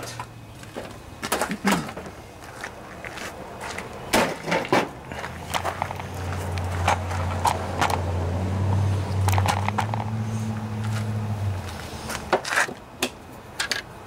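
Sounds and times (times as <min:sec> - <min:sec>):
low engine hum: 0:04.8 - 0:12.3.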